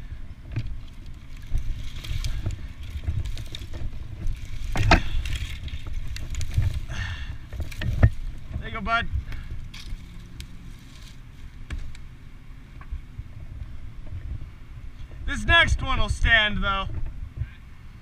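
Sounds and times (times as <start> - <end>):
hands rustling through twigs: 0.0 - 12.2
wind rumbling on microphone: 0.0 - 18.0.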